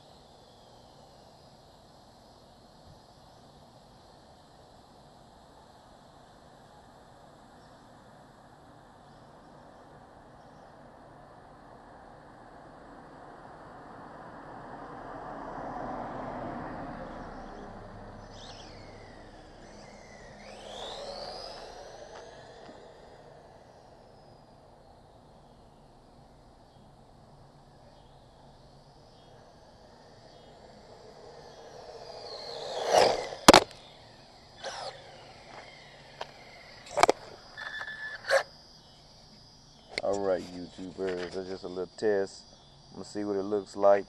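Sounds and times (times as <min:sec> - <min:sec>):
car passing: 0:13.0 - 0:38.4
high whistle falling and rising: 0:17.1 - 0:26.5, 0:27.6 - 0:39.0.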